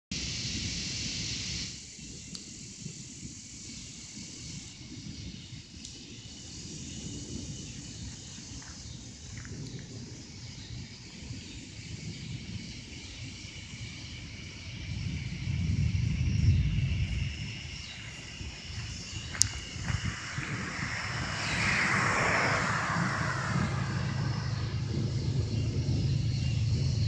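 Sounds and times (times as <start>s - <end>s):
steady high hiss: 0.2s - 9.4s, 10.0s - 27.0s
wind buffeting microphone: 0.2s - 27.0s.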